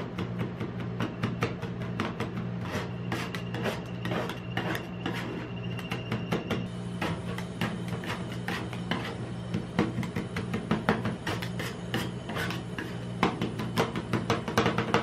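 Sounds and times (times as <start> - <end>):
spatulas scraping cold plate: 2.6 - 5.6, 11.2 - 13.1.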